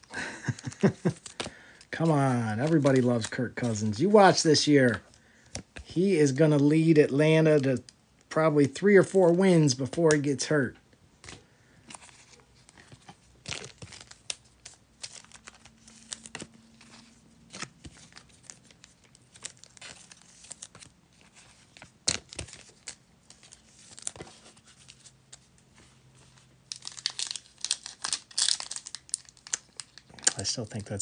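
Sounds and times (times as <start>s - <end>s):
cards and packaging rustling: 0.0s - 31.0s
plastic wrapper crinkling torn: 0.2s - 3.7s, 12.8s - 20.9s, 26.7s - 31.0s.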